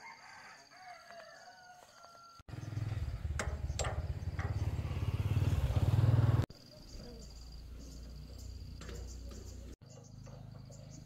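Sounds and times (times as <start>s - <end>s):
engine chugging: 2.5s - 6.5s.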